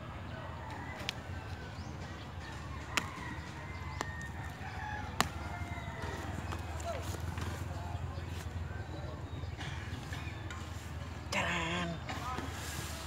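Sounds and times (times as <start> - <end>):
rooster crowing: 2.4 - 6.5.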